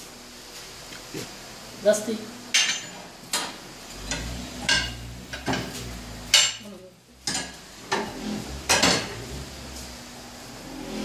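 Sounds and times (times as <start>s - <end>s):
tyre changer motor hum: 7.2s - 11.0s.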